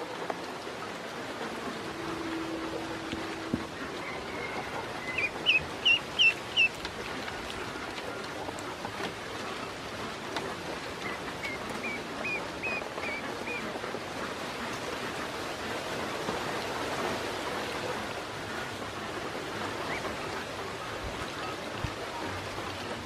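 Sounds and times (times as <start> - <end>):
ducklings splashing in water: 3.1 - 23.0
ducklings peeping: 3.7 - 15.5, 19.5 - 23.0.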